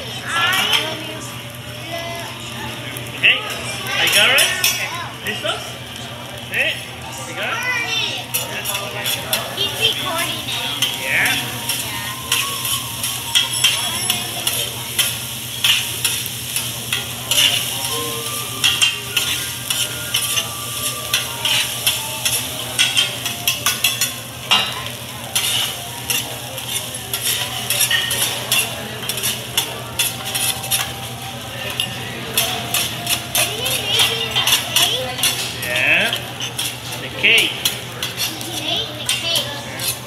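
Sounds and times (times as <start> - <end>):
rice sizzling on griddle: 0.0 - 40.0
metal spatulas scraping and clacking: 10.4 - 31.0, 31.7 - 40.0.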